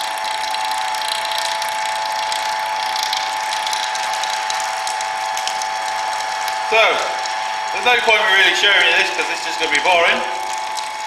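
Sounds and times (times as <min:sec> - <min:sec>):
mixer motor and gears whining: 0:02.6 - 0:11.0.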